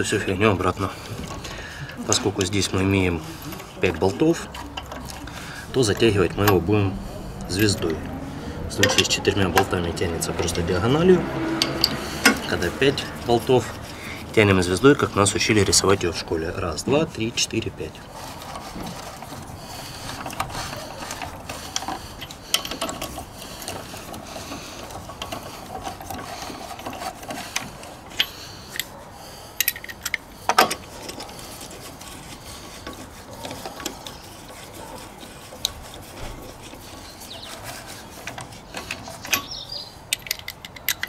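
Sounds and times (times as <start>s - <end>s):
socket wrench clicking: 38.9s - 41.0s.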